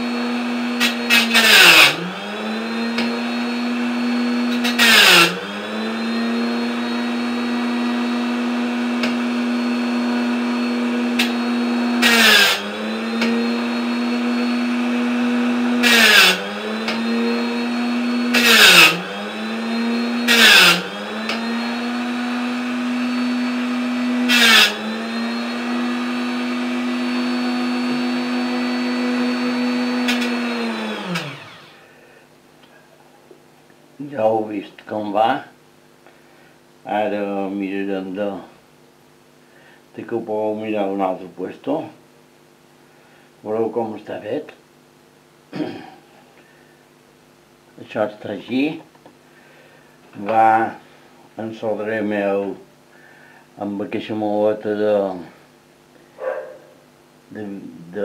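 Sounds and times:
rotary tool whining: 0.0s - 31.8s
rotary tool spinning down: 0.8s - 3.1s, 4.5s - 6.2s, 11.2s - 13.5s, 15.8s - 17.2s, 30.0s - 31.7s.

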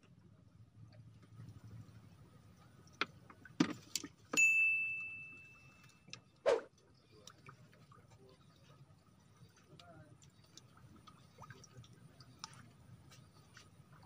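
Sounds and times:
metallic ding: 4.4s - 5.5s.

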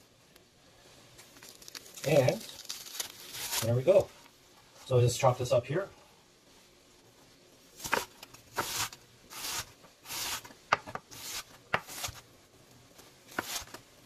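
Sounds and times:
knife slicing onion: 7.8s - 12.2s, 13.3s - 13.8s.

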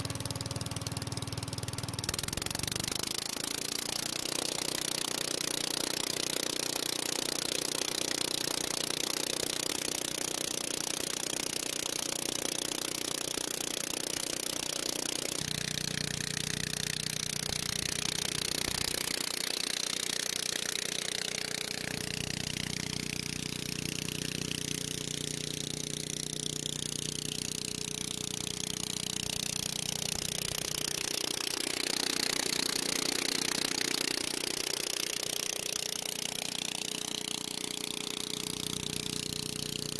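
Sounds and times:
leaf blower air rush: 0.0s - 5.6s, 15.3s - 39.9s
engine running steadily: 0.0s - 39.9s.

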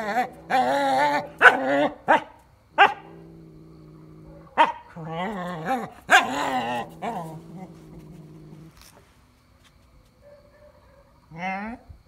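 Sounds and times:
low growls: 0.0s - 2.0s, 3.0s - 9.0s
puppy barking: 0.5s - 3.1s, 4.6s - 4.9s, 5.7s - 7.2s.

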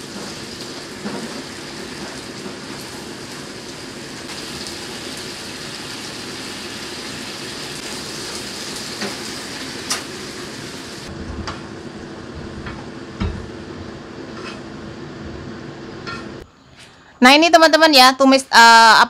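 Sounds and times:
stir-fry sizzling in pan: 0.0s - 11.1s.

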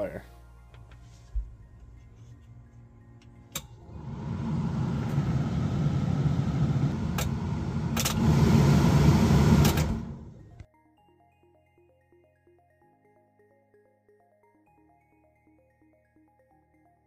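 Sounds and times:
pickup truck running: 3.7s - 10.6s.

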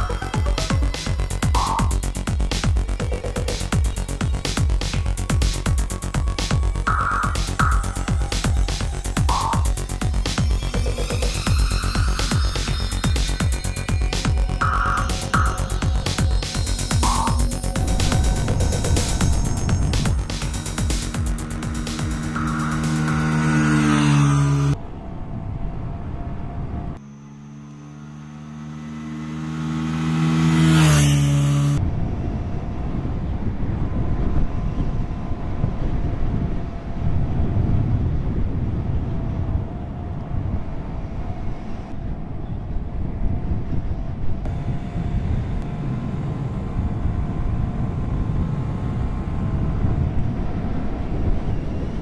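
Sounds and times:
wind rushing: 4.1s - 27.0s
motorbike engine passing by: 14.6s - 24.8s, 27.0s - 31.8s.

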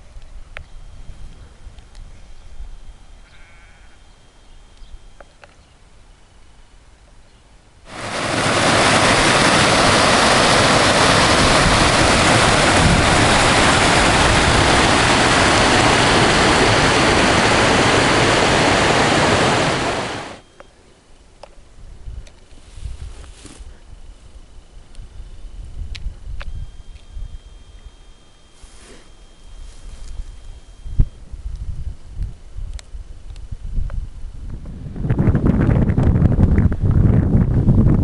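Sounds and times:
river rapids roaring: 7.9s - 20.4s.

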